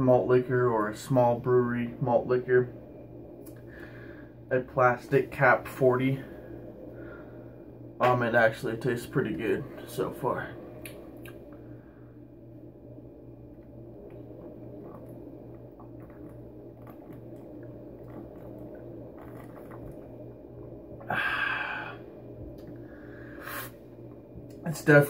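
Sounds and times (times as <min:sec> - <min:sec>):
steady low hum: 0:00.0 - 0:25.0
breathy exhale: 0:03.6 - 0:04.4, 0:06.2 - 0:07.7, 0:21.0 - 0:22.1, 0:22.8 - 0:23.8
person swallowing: 0:13.6 - 0:22.8.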